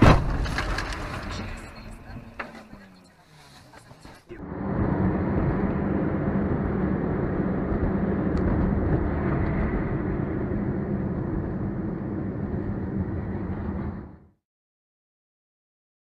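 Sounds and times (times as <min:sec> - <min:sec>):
car engine and road rumble: 0:00.0 - 0:14.4.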